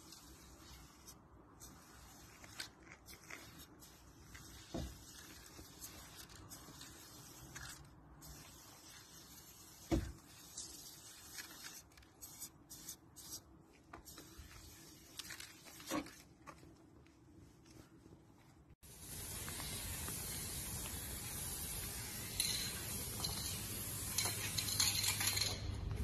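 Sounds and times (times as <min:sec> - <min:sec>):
spray paint can hissing: 0:00.0 - 0:13.4, 0:14.0 - 0:15.8, 0:18.9 - 0:25.5.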